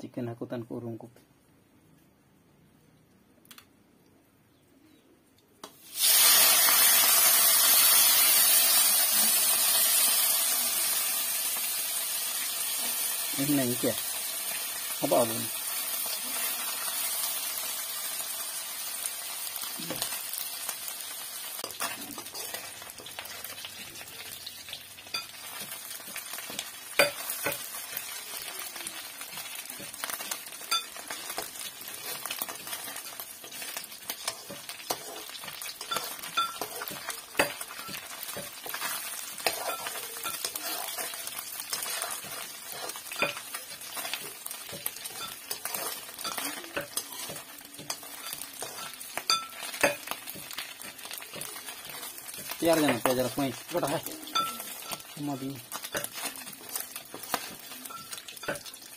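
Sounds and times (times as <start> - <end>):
food sizzling in a wok: 5.6 - 58.9
metal spatula scraping pan: 21.6 - 23.7, 29.8 - 58.7.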